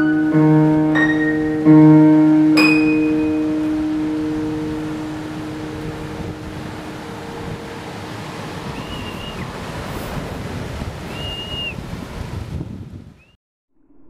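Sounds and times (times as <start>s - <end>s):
low held notes: 0.0s - 9.4s
waves breaking on beach: 0.0s - 13.2s
short high whistles: 8.7s - 9.4s, 11.1s - 11.8s.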